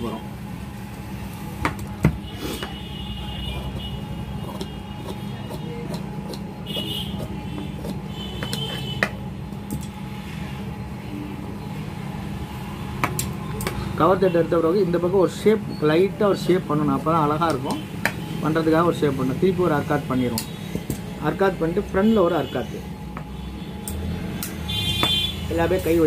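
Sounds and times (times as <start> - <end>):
shears cutting fabric: 3.6 - 9.0.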